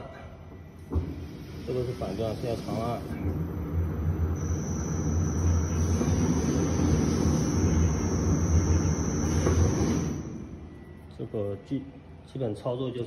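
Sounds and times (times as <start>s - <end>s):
electric motor humming and whining: 3.2s - 10.6s.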